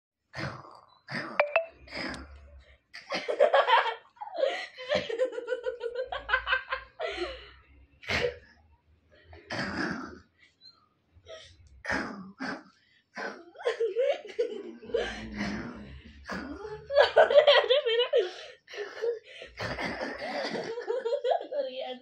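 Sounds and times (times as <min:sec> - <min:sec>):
breathy giggles: 0:13.4 - 0:21.5.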